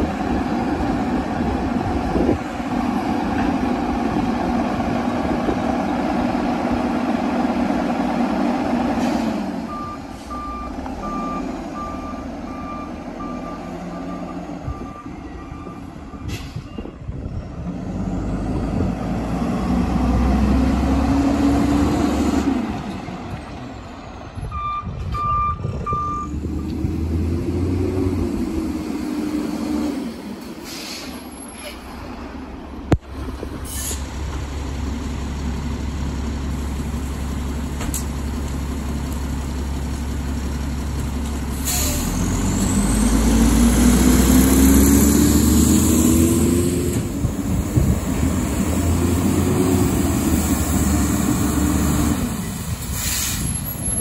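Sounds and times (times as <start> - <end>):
garbage truck engine revving: 17.6 - 22.9, 26.3 - 30.4, 40.4 - 53.8.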